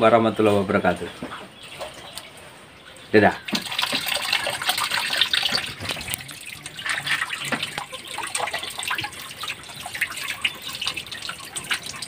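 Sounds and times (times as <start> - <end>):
water splashing: 2.9 - 12.0
water running into a basin: 3.2 - 12.0.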